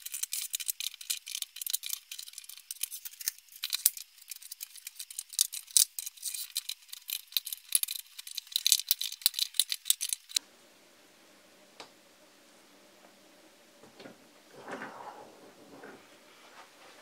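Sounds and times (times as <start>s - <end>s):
rapid plastic clicking: 0.0s - 10.4s
low hum: 10.4s - 17.0s.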